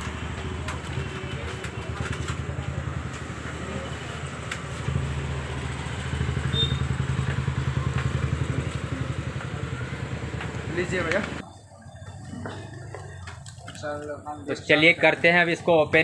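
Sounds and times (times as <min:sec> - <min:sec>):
motorcycle engine idling: 0:04.9 - 0:11.4.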